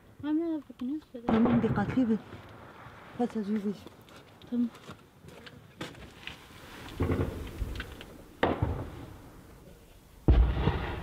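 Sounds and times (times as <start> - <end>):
distant heavy booms: 1.3 - 3.1, 8.4 - 9.5, 10.2 - 11.0.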